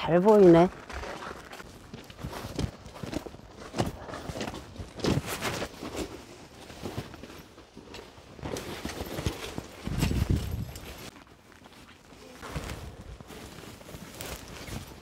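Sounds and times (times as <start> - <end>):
footsteps on icy snow: 0.0 - 7.2.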